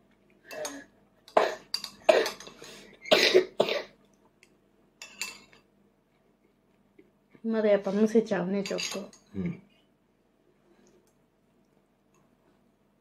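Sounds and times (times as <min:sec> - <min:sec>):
toddler coughing: 0:01.4 - 0:02.4, 0:03.1 - 0:03.9.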